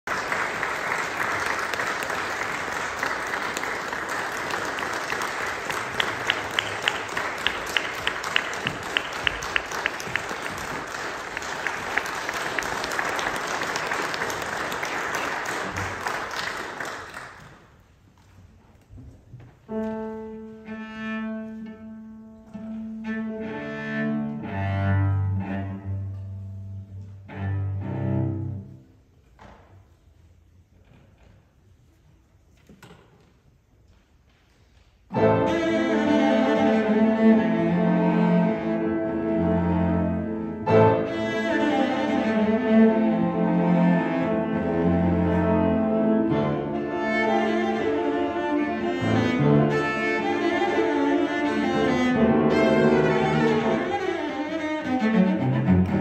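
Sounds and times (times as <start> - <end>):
audience applauding: 0.0 - 17.7
hands clapping nearby: 0.0 - 17.8
cello tuning long bowed notes: 19.7 - 28.9, 35.1 - 56.0.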